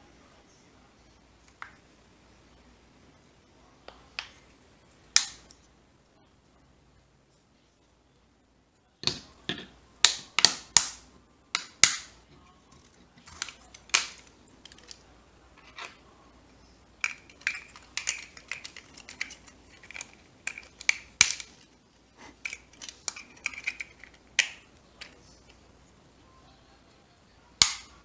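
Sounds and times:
small plastic crackles: 12.7s - 15.1s, 17.0s - 25.6s.

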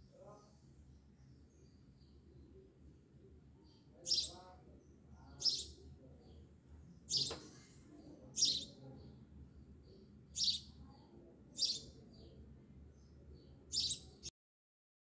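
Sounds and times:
low steady background: 0.0s - 14.3s
bird chirping: 3.6s - 12.4s, 13.0s - 14.3s.

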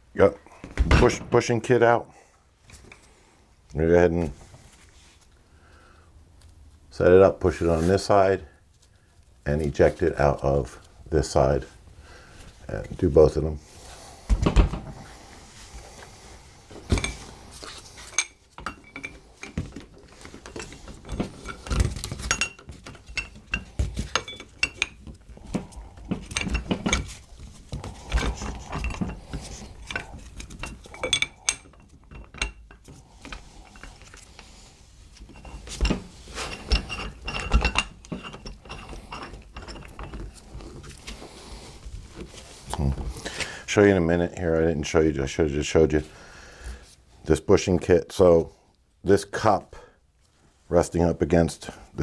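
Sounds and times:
steel tool parts clinking and knocking: 18.0s - 34.2s, 35.2s - 40.6s.

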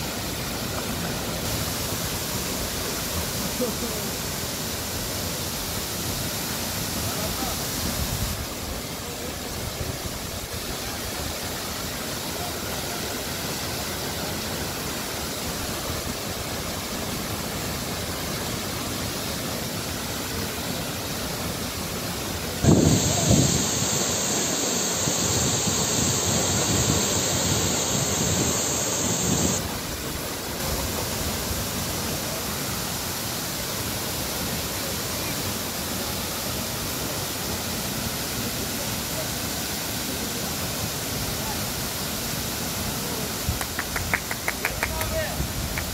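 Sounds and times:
waterfall rushing: 22.2s - 35.7s.

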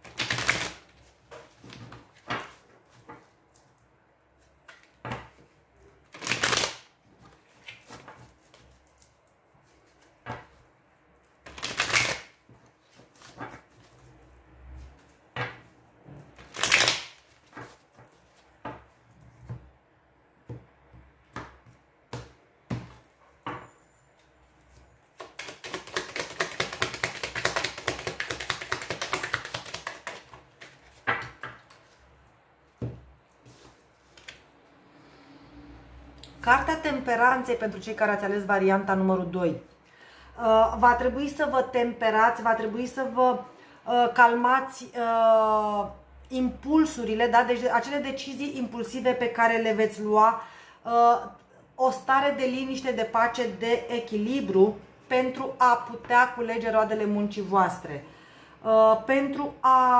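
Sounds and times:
cards being shuffled: 0.0s - 3.3s, 6.0s - 8.8s, 11.4s - 14.0s, 16.4s - 18.6s, 24.6s - 32.1s, 33.3s - 34.5s.

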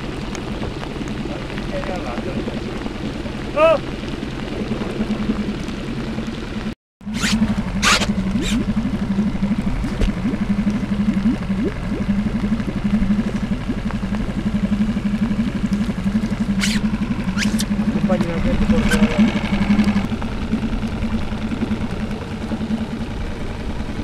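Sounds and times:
boat motor throbbing: 0.0s - 24.0s
sharp swishes: 7.1s - 8.6s, 16.6s - 16.8s, 17.4s - 17.7s.

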